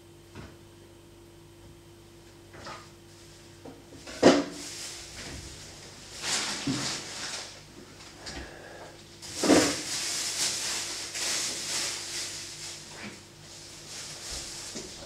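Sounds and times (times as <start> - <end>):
faint steady hum: 0.0 - 15.0
rustling and scraping: 4.0 - 8.2, 9.2 - 15.0.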